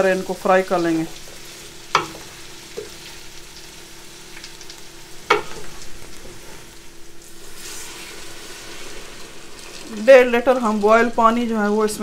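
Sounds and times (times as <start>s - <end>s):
vegetables sizzling in butter: 0.0s - 12.0s
wooden spoon knocking pot: 2.0s - 2.3s.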